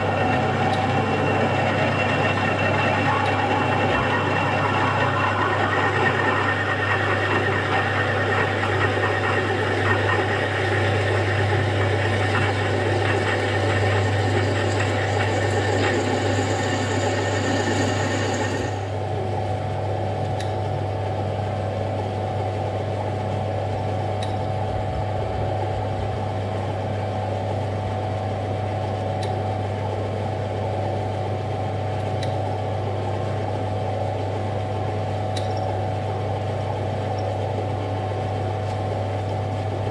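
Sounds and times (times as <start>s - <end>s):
lathe motor hum: 0.0s - 39.9s
drill grinding through metal: 13.2s - 18.8s.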